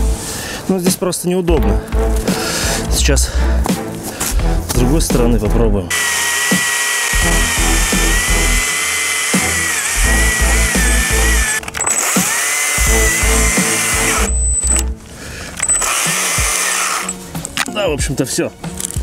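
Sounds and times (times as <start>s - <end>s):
background music: 0.0s - 19.0s
chainsaw cutting wood: 5.9s - 14.9s, 15.6s - 17.2s.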